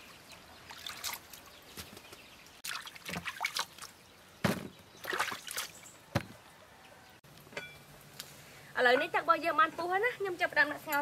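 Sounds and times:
water splashes: 0:00.0 - 0:01.6, 0:02.6 - 0:04.0, 0:05.0 - 0:05.9.

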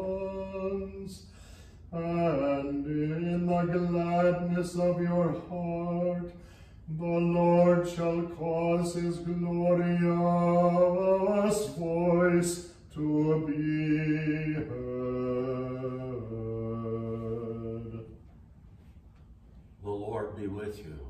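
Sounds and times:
man chanting: 0:00.0 - 0:01.2, 0:01.9 - 0:06.3, 0:06.9 - 0:18.1.

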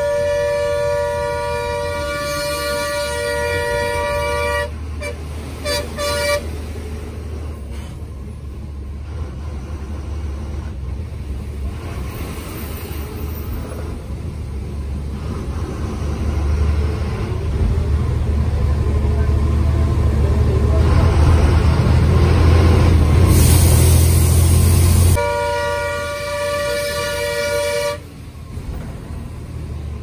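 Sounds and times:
bus horn: 0:00.0 - 0:06.8, 0:25.0 - 0:28.2
bus engine and road noise: 0:00.0 - 0:30.0.

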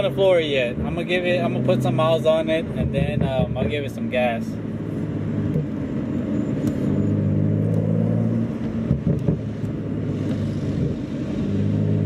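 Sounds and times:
car engine at light throttle: 0:00.0 - 0:12.0.

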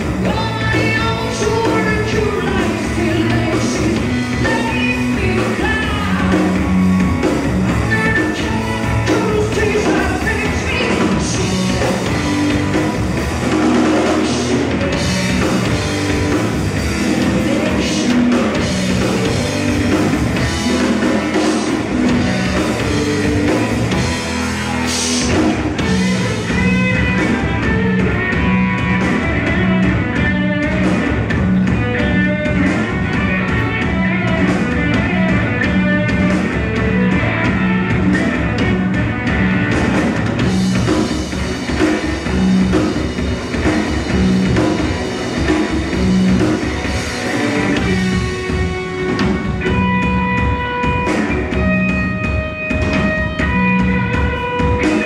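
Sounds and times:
bass guitar: 0:00.0 - 0:55.0
drum kit: 0:00.0 - 0:55.0
electric guitar: 0:00.0 - 0:55.0
woman singing into a microphone: 0:00.3 - 0:06.5, 0:07.8 - 0:11.4.

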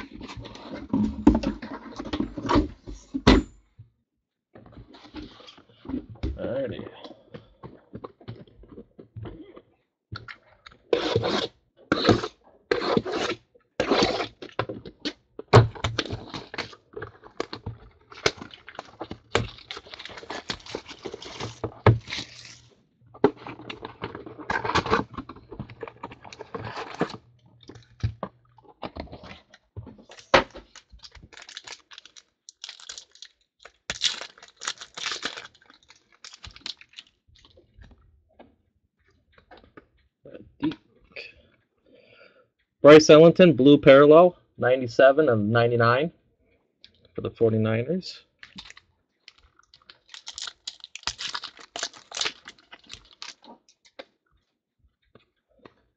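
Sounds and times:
wrapping and cardboard tearing: 0:10.9 - 0:14.6, 0:15.9 - 0:22.8, 0:23.4 - 0:25.2, 0:25.8 - 0:27.2, 0:30.0 - 0:37.2, 0:48.5 - 0:53.7
foil packs rustling: 0:17.4 - 0:22.7, 0:30.0 - 0:37.2, 0:48.5 - 0:53.5.

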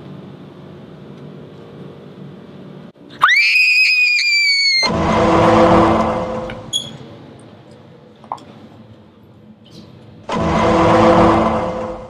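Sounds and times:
person screaming high-pitched: 0:03.2 - 0:04.9
rushing noise: 0:04.7 - 0:07.3, 0:10.2 - 0:12.0.

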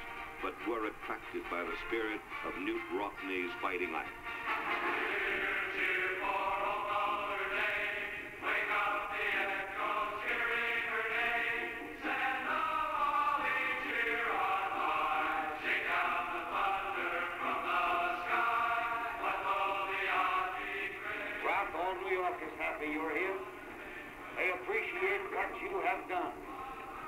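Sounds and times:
group of voices singing: 0:04.6 - 0:22.4.

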